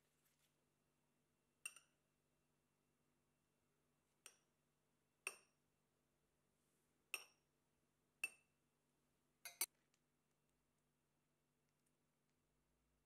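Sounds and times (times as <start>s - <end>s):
spoon clinking on glass: 9.4s - 9.7s.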